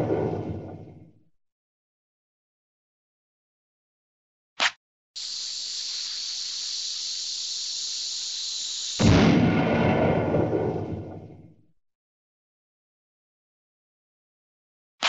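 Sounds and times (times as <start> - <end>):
loud explosion: 0.0 - 1.0, 8.8 - 11.6
fuse hissing: 5.2 - 9.3.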